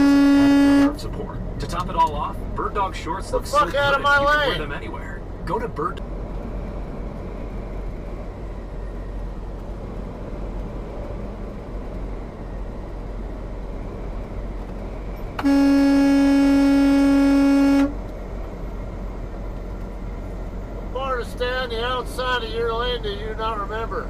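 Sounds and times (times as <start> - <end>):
truck horn blast: 0.0 - 1.0, 15.4 - 18.0
road and engine noise in truck cab: 0.0 - 24.0.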